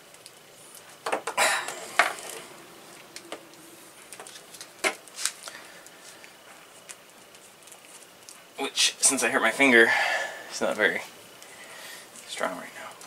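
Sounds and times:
wires scraping creaks: 0.6 - 8.4.

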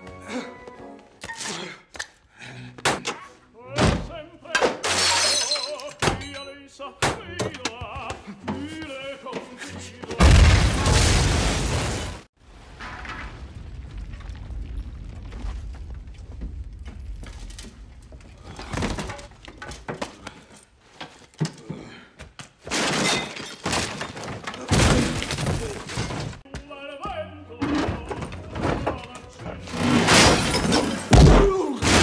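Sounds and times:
music: 0.0 - 1.7, 2.3 - 4.8, 5.8 - 10.3, 26.5 - 30.0
glass shattering: 4.8 - 6.6, 22.7 - 26.4, 29.7 - 32.0.

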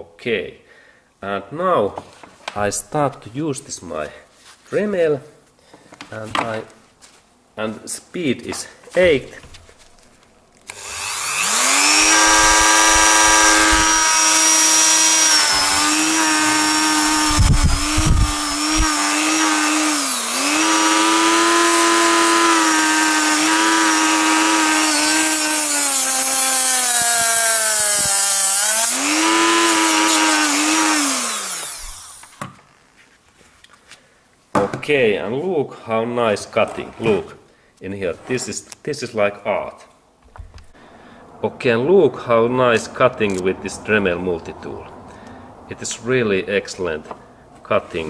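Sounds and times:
rotary tool grinding copper cable: 10.7 - 32.4.

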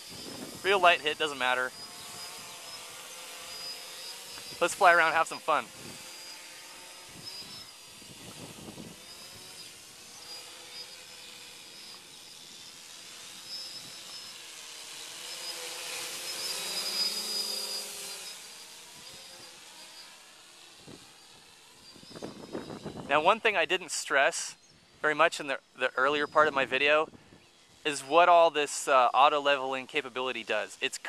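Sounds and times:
drone propellers buzzing: 0.0 - 23.9.

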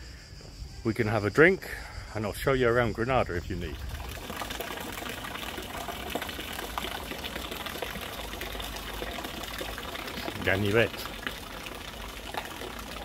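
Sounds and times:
fountain splashing into pool: 3.6 - 13.0.

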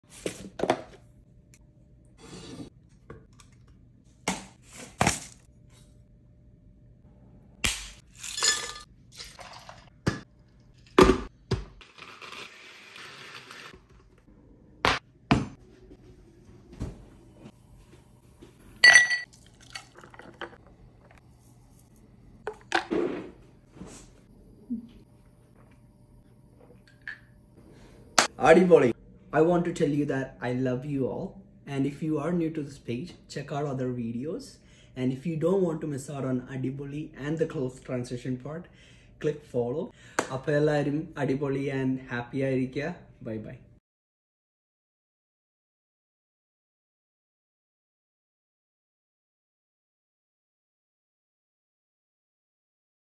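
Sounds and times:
ice cubes clinking in glassware: 8.1 - 9.9.

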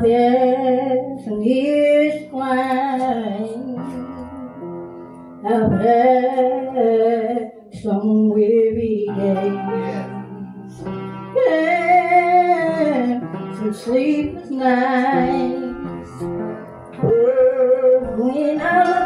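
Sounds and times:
woman singing into microphone: 0.0 - 4.3, 5.4 - 19.0
instrumental accompaniment: 0.0 - 19.0.

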